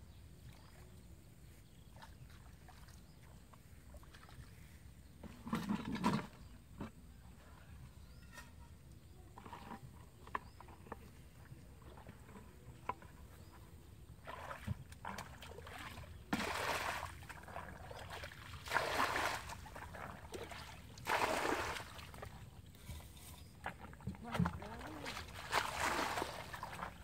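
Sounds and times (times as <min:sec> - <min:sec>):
water sloshing: 0:09.3 - 0:27.0
water splashing: 0:14.2 - 0:22.5, 0:23.7 - 0:27.0.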